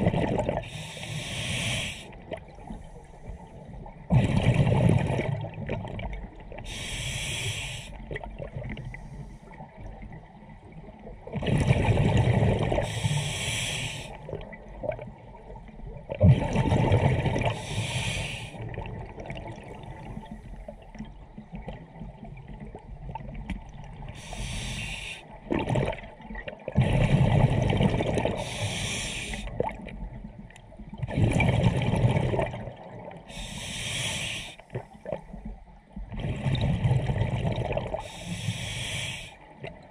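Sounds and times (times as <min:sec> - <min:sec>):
exhaled bubbles rumbling: 0:00.0 - 0:00.8, 0:02.1 - 0:06.8, 0:07.9 - 0:13.3, 0:14.1 - 0:24.6, 0:25.3 - 0:33.4, 0:34.7 - 0:38.2
regulator inhalation hiss: 0:00.7 - 0:02.2, 0:06.7 - 0:08.0, 0:12.8 - 0:14.2, 0:17.6 - 0:18.6, 0:24.2 - 0:25.2, 0:28.4 - 0:29.5, 0:33.3 - 0:34.7, 0:38.0 - 0:39.4.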